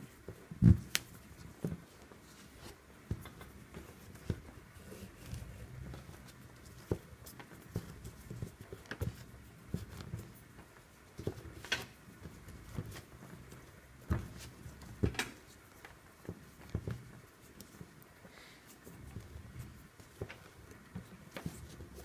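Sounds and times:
cord rubbing: 0.7 - 14.8.

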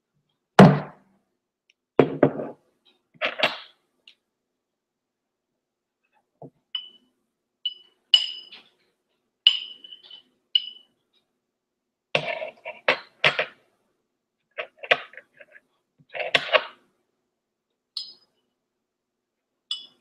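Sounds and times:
metal spoon clinking bowl: 7.7 - 8.8, 9.5 - 10.9, 18.0 - 18.4, 19.7 - 20.0.

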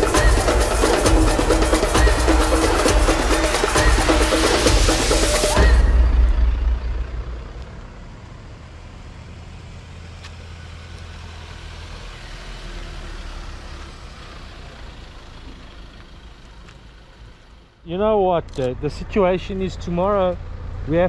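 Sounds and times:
vehicles driving past: 0.0 - 21.0.

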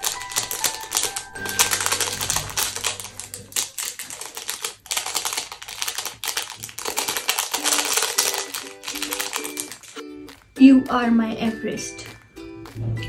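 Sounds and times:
paper sachet crinkling: 0.0 - 10.0.

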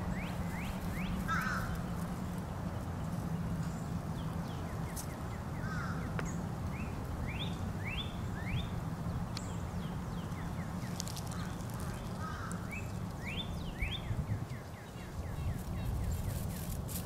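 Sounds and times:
bird chirping and warbling: 10.2 - 16.6.

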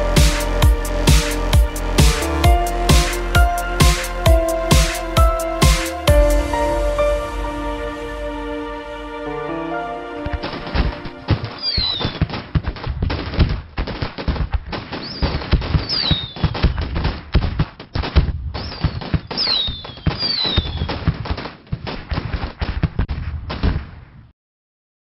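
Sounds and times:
fireworks falling whistles: 15.8 - 16.4, 18.8 - 20.9.

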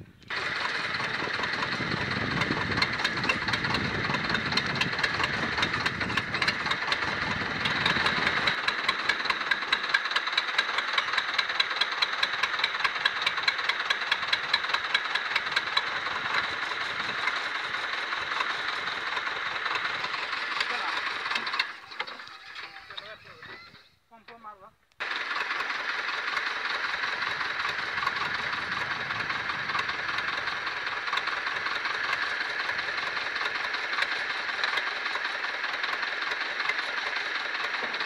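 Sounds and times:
diesel tractor engine straining: 0.0 - 23.9, 25.0 - 38.0.

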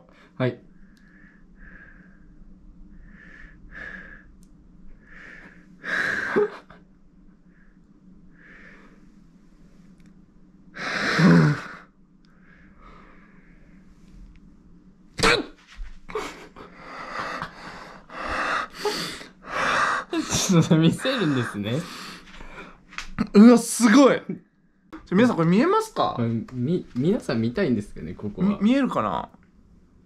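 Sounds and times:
man's strained hums and breaths: 0.0 - 6.8, 16.1 - 22.8.

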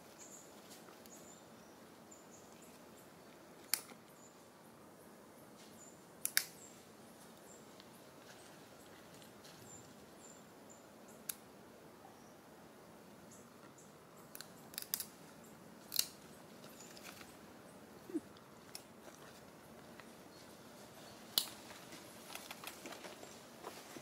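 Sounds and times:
leaves and twigs crackling underfoot: 5.5 - 10.3, 14.3 - 17.5, 18.4 - 24.0.

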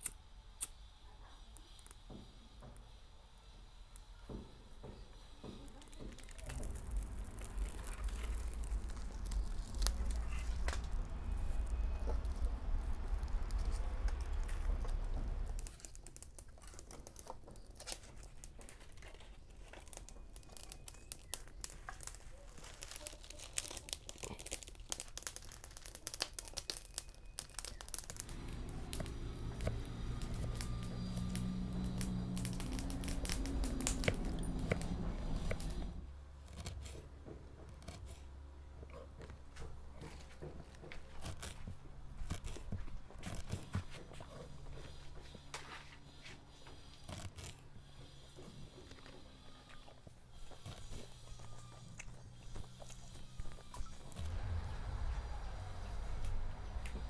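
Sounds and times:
wood fire crackling: 3.8 - 37.1, 46.8 - 57.0
low steady hum: 5.6 - 25.8, 26.6 - 57.0
low rumble: 6.4 - 15.8, 28.2 - 36.2, 52.8 - 57.0.

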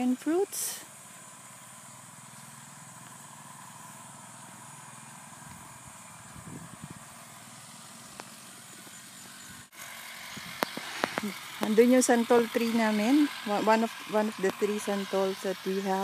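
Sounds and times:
small engine humming: 0.0 - 16.0.

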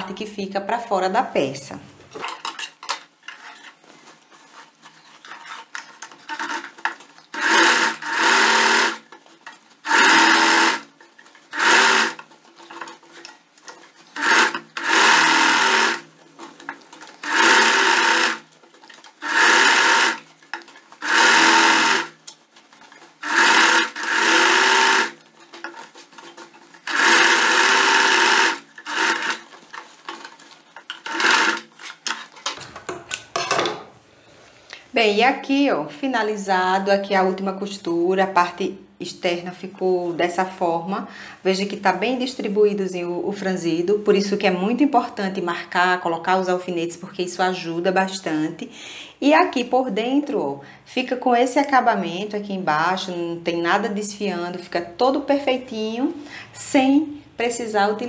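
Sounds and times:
sewing machine stitching: 6.1 - 9.1, 9.8 - 12.3, 14.1 - 16.1, 17.2 - 20.3, 21.0 - 22.2, 23.2 - 29.5, 30.2 - 32.2.

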